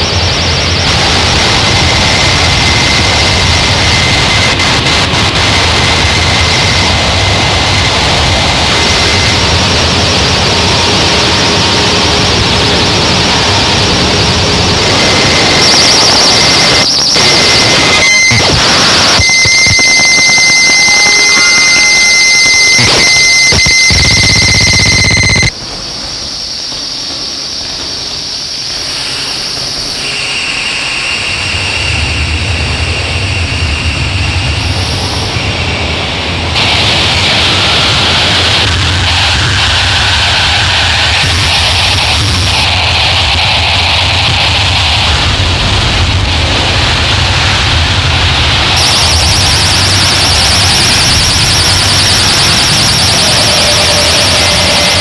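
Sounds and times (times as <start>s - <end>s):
buzzing high synth tone: 0.0s - 35.6s, 48.8s - 55.0s
hissing wash of noise: 0.0s - 55.0s
thin high whine: 0.0s - 55.0s.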